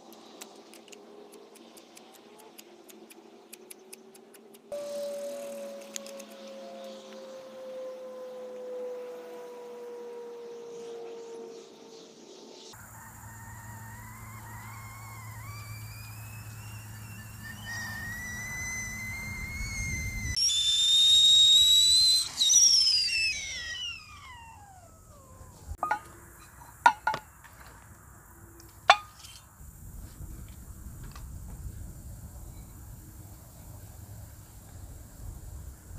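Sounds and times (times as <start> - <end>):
kettle whistling: 4.7 - 6.8, 13.7 - 26.1, 28.9 - 29.4
light clinks: 25.8 - 27.2.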